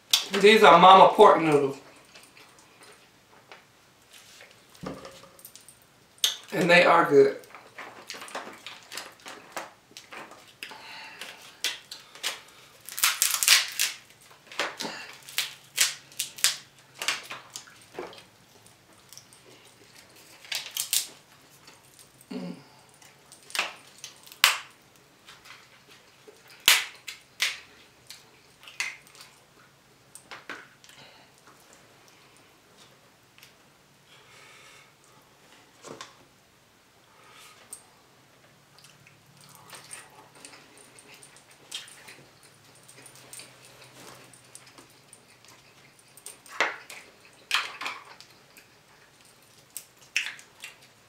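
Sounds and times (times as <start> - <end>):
crab shells cracking: 7.5 - 18.2, 20.0 - 21.2, 23.4 - 24.8, 26.4 - 29.3, 44.7 - 51.0
person chewing: 38.8 - 51.0.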